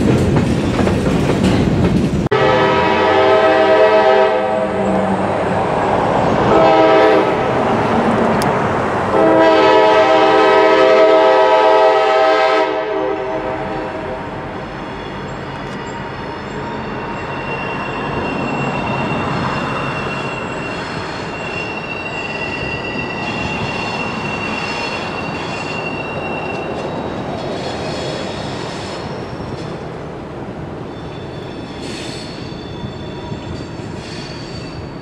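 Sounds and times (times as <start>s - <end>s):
rumble of train cars: 0.0s - 35.0s
train wheels squealing: 14.5s - 29.9s, 30.8s - 35.0s.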